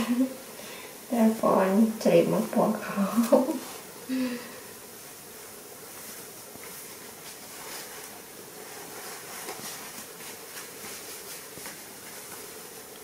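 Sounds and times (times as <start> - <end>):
steady background hiss: 0.0 - 13.0
cloth rustling: 5.4 - 13.0.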